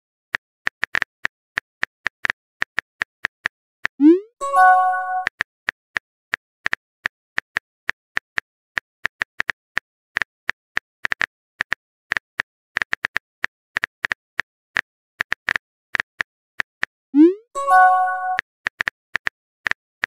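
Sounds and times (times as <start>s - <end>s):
message sent chime: 4.0s - 5.3s, 17.2s - 18.4s.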